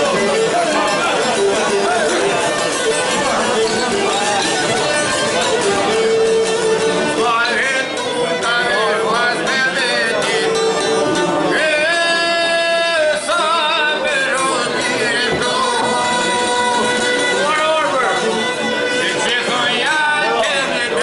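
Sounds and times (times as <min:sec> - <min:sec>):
man singing folk song: 0:00.0 - 0:21.0
two-string lute: 0:00.0 - 0:21.0
violin: 0:00.0 - 0:21.0.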